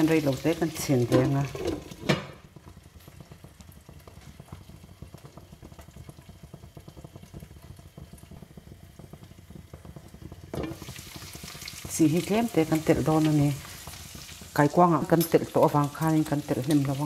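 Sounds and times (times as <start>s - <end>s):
food bubbling and crackling: 0.0s - 17.0s.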